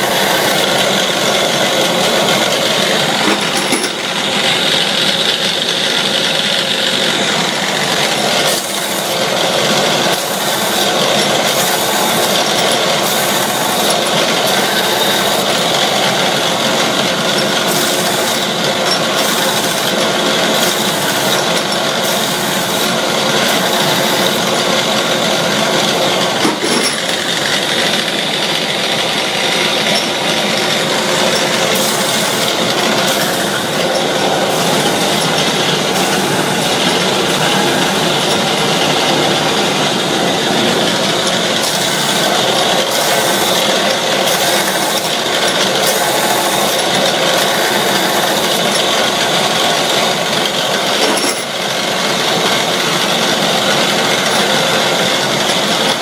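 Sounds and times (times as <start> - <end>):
factory machinery drone: 0.0 - 56.0
metallic clatter and rattle: 0.1 - 4.8, 7.2 - 46.2.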